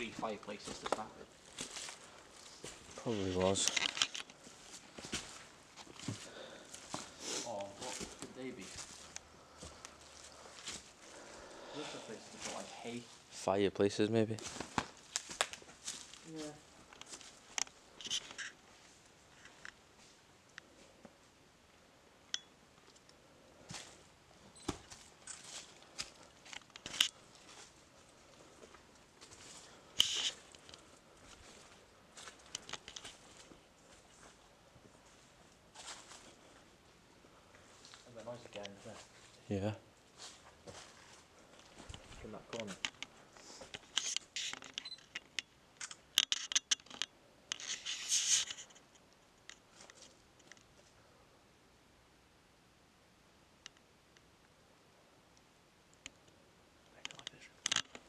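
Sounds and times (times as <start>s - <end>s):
footsteps crunching on leaves and twigs: 0.0s - 11.1s, 12.2s - 13.3s, 14.4s - 17.5s, 24.7s - 27.8s, 28.4s - 36.6s, 40.1s - 42.8s
twigs snapping underfoot: 14.4s - 16.0s.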